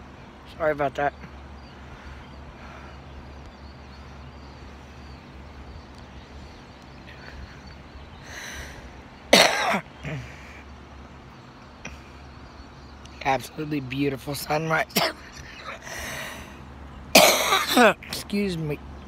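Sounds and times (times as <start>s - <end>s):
low background hum: 0.0s - 19.0s
person coughing: 9.4s - 10.3s, 15.0s - 15.2s, 17.2s - 18.0s.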